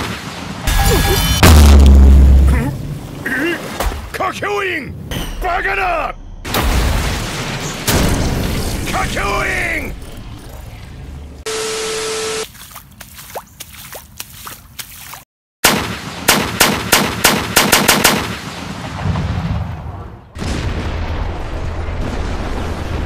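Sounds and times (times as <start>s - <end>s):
sharp shot-like cracks: 15.6s - 18.7s
loud explosion rumble: 18.9s - 23.0s.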